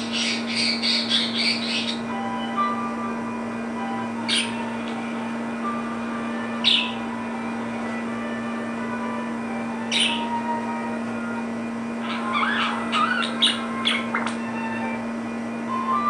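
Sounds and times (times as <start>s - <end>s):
budgerigars chirping: 0.0s - 2.0s, 6.6s - 7.0s, 9.9s - 10.4s, 12.0s - 14.4s
steady low hum: 0.0s - 16.0s.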